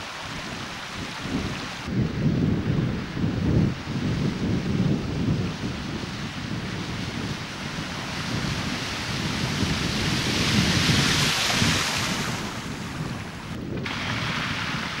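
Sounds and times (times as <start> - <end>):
wind buffeting microphone: 0.0 - 15.0
car tyres spraying water: 7.8 - 12.8.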